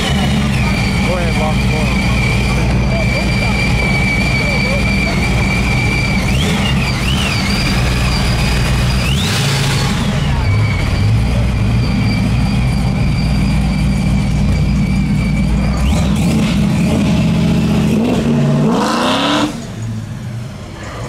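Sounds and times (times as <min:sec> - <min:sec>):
car engine idling: 0:00.0 - 0:21.0
high-pitched whine: 0:00.0 - 0:21.0.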